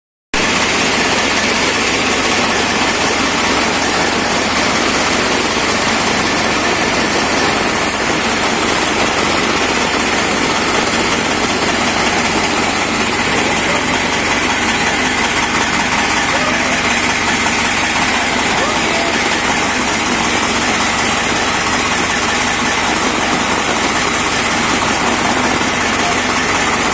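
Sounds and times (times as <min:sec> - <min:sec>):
chaff cutter mechanical rush: 0:00.4 - 0:26.9
tractor engine running: 0:00.4 - 0:26.9.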